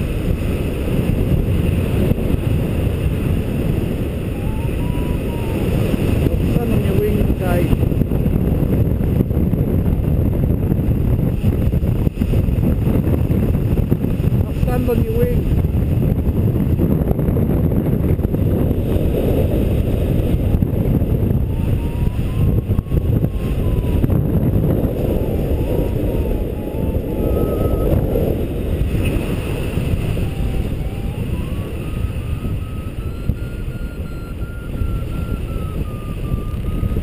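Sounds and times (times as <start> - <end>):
wind rushing over microphone: 0.0 - 37.0
variometer tone: 4.0 - 8.1, 19.7 - 37.0.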